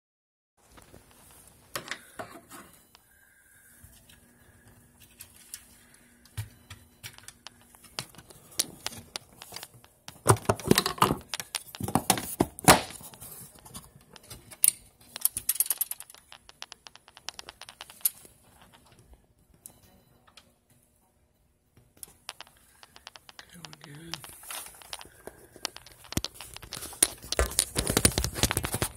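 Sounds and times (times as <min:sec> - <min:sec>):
handling clicks and taps: 0:22.0 - 0:28.9.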